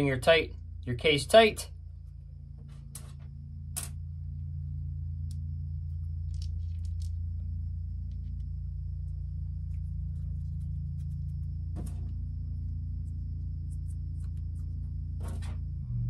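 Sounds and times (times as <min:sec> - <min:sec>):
steady low hum: 0:00.0 - 0:16.0
faint clicks of small parts: 0:06.2 - 0:07.2.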